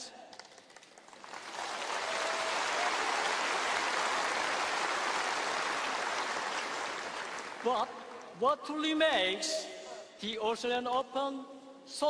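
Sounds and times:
stadium crowd applauding: 0.3 - 8.3.

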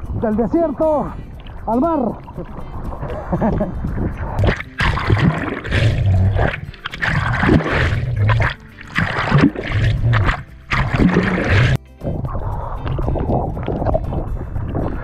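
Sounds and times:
water splashing and churning: 1.3 - 15.0
deep rumble: 9.3 - 15.0.

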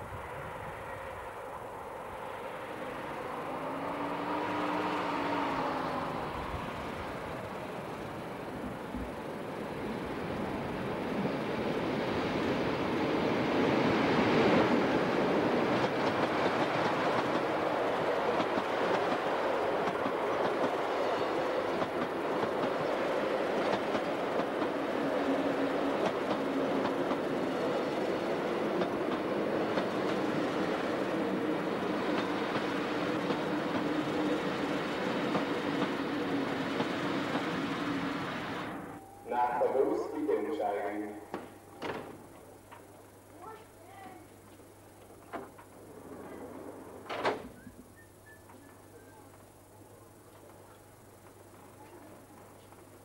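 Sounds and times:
train rolling past: 0.0 - 53.0
steady wheel hum: 0.1 - 11.7
wheels clicking over rail joints: 25.6 - 37.6.

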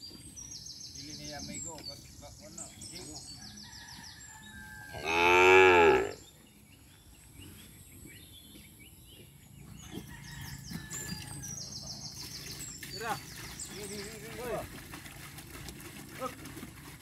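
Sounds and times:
cow mooing: 4.9 - 6.2.

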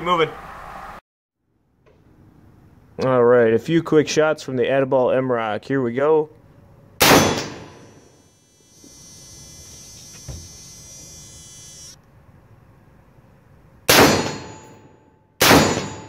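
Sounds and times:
rifle shots: 7.0 - 7.8, 13.9 - 14.6, 15.4 - 16.0
electrical buzzing: 7.4 - 12.0.

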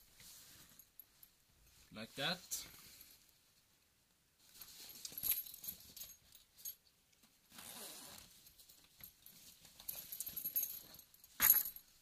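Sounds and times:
fabric rustling: 0.0 - 3.3, 4.4 - 6.8
buckles clinking: 5.0 - 6.8, 8.8 - 11.9.

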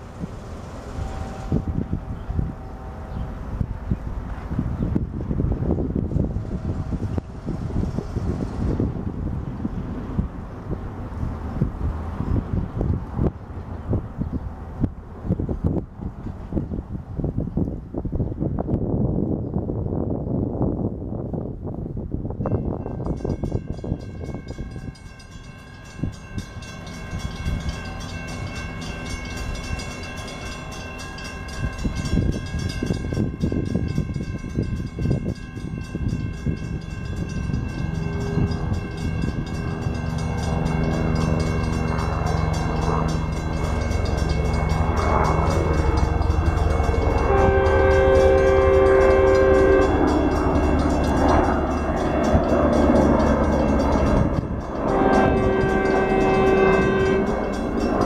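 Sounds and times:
train engine and wheels: 0.0 - 58.0
locomotive horn: 0.8 - 3.6, 35.3 - 58.0.

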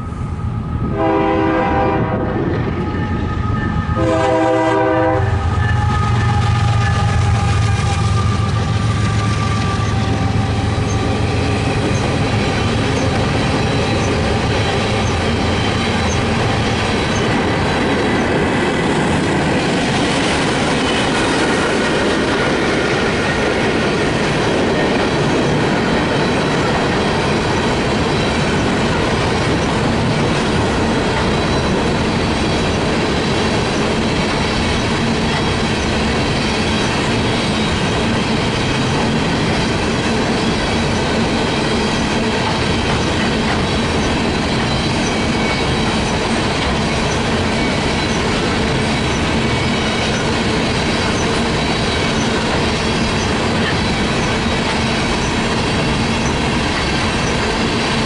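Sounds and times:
locomotive engine hum: 0.0 - 58.0
steel wheels rumbling on rail: 0.0 - 58.0.

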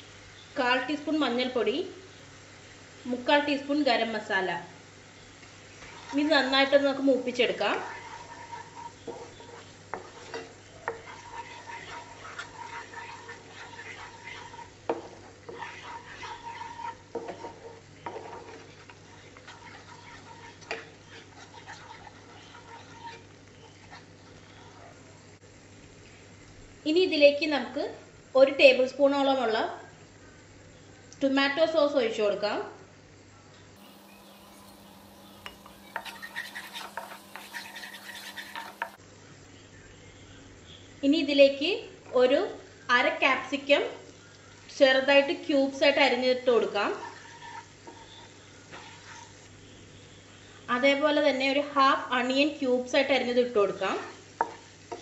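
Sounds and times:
paste sizzling in oil: 2.4 - 25.4, 33.8 - 39.0, 44.6 - 50.6, 53.1 - 55.0
spatula scraping a pan: 5.4 - 25.0, 33.8 - 39.0, 46.0 - 49.8, 53.6 - 55.0
spoon tapping pan: 33.8 - 39.0.

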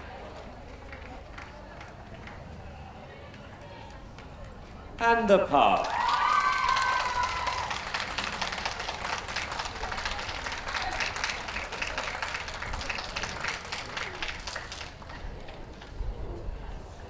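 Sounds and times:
hands clapping: 0.7 - 2.4, 5.6 - 15.9.

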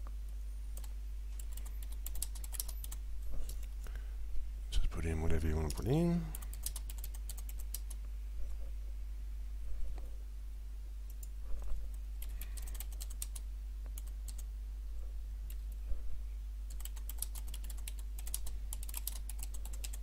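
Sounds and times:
steady low hum: 0.0 - 20.0
typing on computer keyboard: 0.8 - 3.6, 5.7 - 8.0, 12.2 - 14.5, 16.7 - 20.0.

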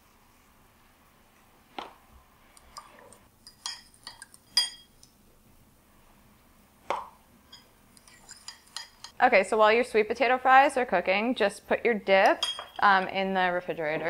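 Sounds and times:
metal spoon clinking ceramic bowl: 3.4 - 4.9, 7.5 - 9.2, 12.3 - 12.8.

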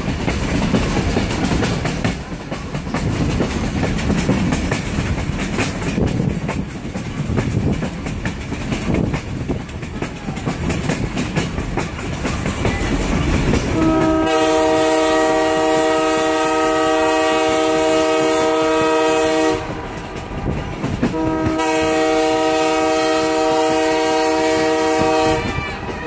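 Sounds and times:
train wheels clattering on rails: 0.0 - 26.0
locomotive air horn blasts: 13.7 - 20.0, 21.1 - 26.0.

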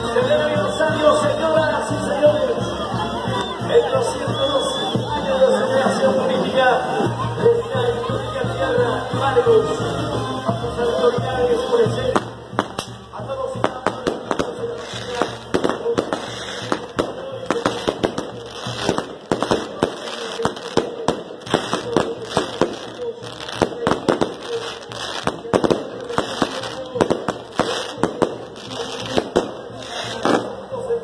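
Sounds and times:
fireworks bangs and crackles: 11.3 - 31.0.

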